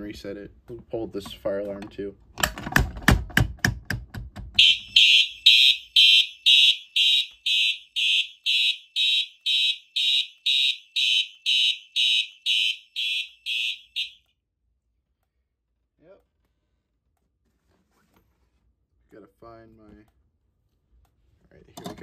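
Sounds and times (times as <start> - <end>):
fire alarm horn pulsing: 4.6 - 14.3.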